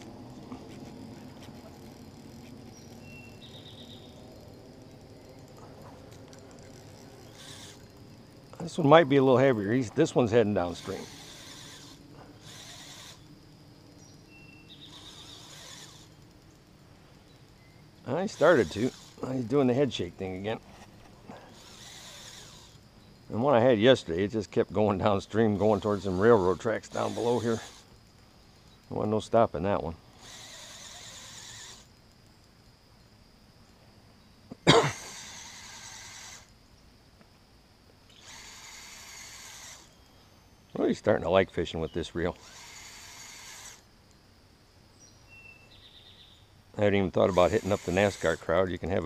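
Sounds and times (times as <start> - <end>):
fishing reel motor whirring: 0.0 - 14.0, 14.6 - 22.8, 25.2 - 27.9, 30.1 - 32.0, 34.9 - 36.5, 38.1 - 40.1, 42.4 - 44.0, 47.1 - 49.0
person coughing: 34.6 - 35.1.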